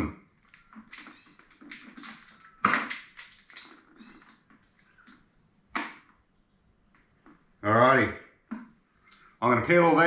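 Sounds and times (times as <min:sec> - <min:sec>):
crayfish shells cracking: 0:00.4 - 0:05.2.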